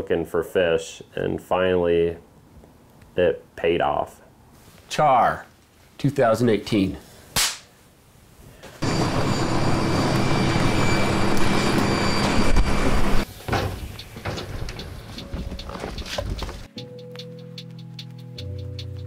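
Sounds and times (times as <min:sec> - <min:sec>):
airliner cabin noise: 0:08.8 - 0:16.7
scattered clicks and knocks: 0:13.5 - 0:16.7.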